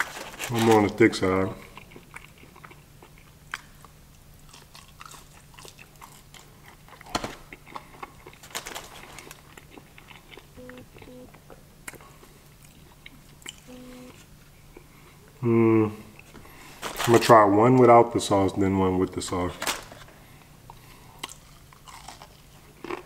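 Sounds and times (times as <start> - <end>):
person chewing fried food: 1.6 - 15.4, 20.4 - 23.0.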